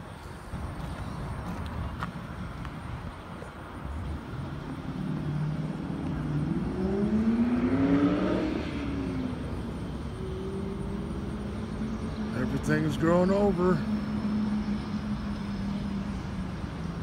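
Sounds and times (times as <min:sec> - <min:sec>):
vehicle engine driving past: 0:04.2 - 0:17.0.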